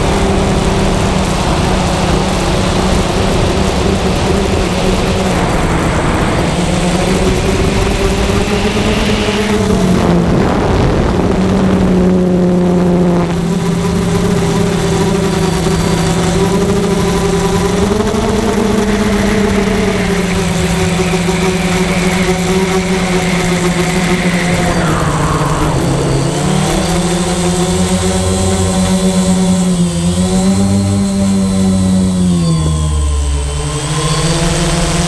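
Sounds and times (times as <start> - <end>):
drone propellers humming: 0.0 - 35.0.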